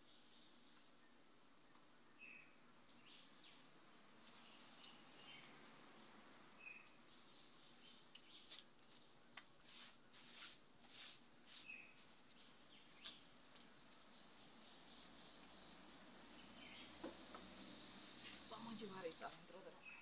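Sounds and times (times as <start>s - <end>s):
bird chirps: 0.0s - 5.7s, 6.4s - 9.0s, 10.9s - 17.2s, 18.2s - 20.0s
broom sweeping tiled floor: 4.2s - 16.1s.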